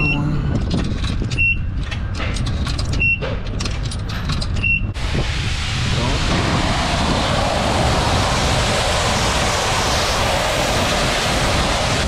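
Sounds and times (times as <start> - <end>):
high-pressure water spray on mat: 5.0 - 12.0.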